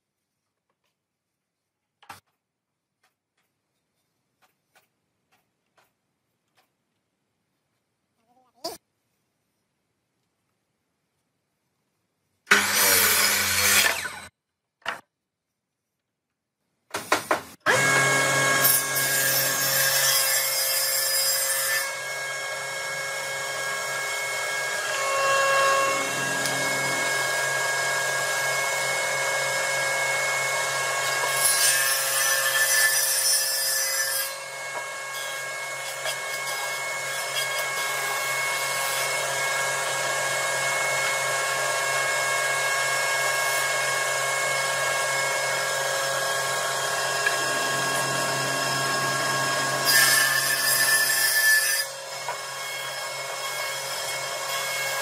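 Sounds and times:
board edge shaved by cutterhead: 12.5 - 14.3, 17.0 - 55.0
jointer motor hum: 22.5 - 31.1, 37.6 - 49.9.

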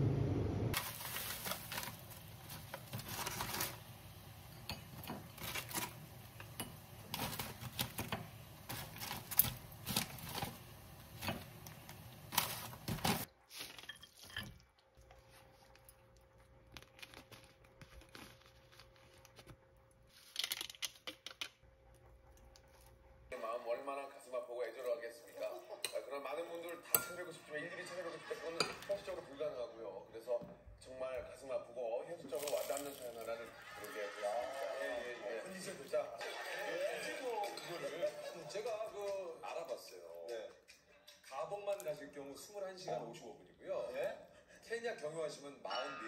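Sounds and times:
rustling and crinkling handling: 0.8 - 4.0, 5.2 - 6.0, 7.1 - 14.3, 15.0 - 21.3.

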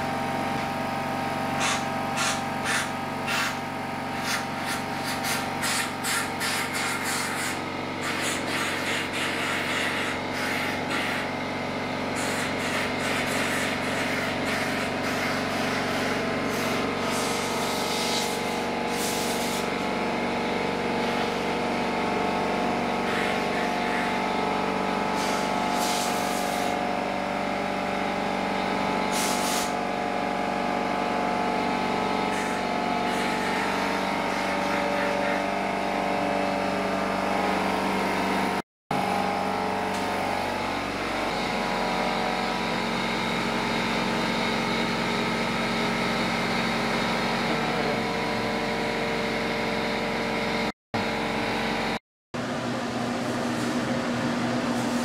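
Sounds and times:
machine drone: 0.0 - 55.0
machine hum: 0.0 - 55.0
compressed air hissing blasts: 1.6 - 3.6, 4.2 - 11.2, 12.2 - 19.8, 25.1 - 26.8, 29.1 - 29.8.

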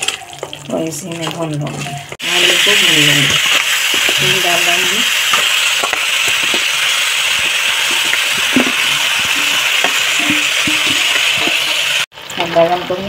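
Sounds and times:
beans sizzling in oil: 0.0 - 13.0
spatula scraping a pan: 1.7 - 12.1.

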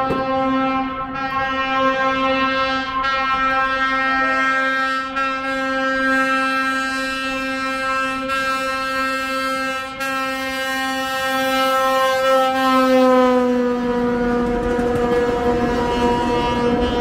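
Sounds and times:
train air horn blast: 0.0 - 17.0.

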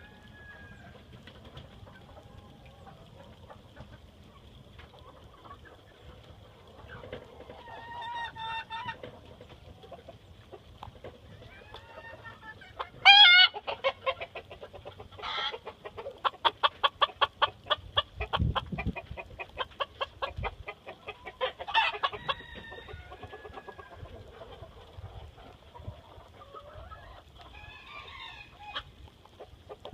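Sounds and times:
chickens clucking: 0.0 - 29.9
wind buffeting microphone: 17.8 - 19.6.

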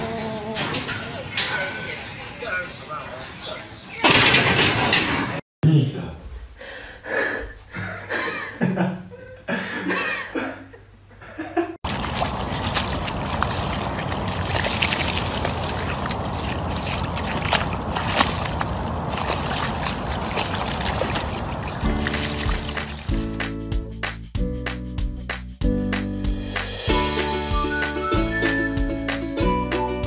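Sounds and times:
dog splashing in mud: 11.8 - 23.3.

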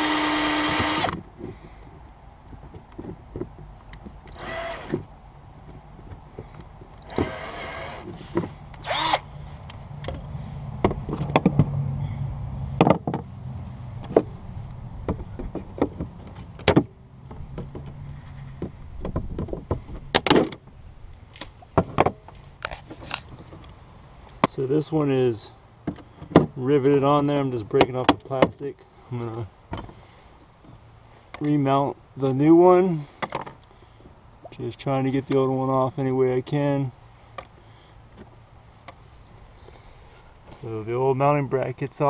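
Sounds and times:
cordless drill drilling: 0.0 - 1.2, 4.3 - 5.0, 7.0 - 8.1, 8.8 - 9.3
sharp clicks and knocks: 9.6 - 11.8.

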